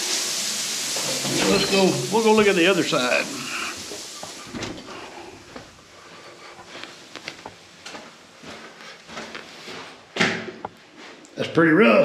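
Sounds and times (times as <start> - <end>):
low hiss: 0.0 - 9.1
footsteps: 3.8 - 11.3.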